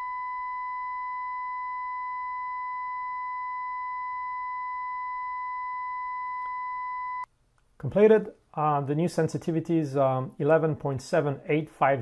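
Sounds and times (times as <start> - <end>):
steady calibration tone: 0.0 - 7.3.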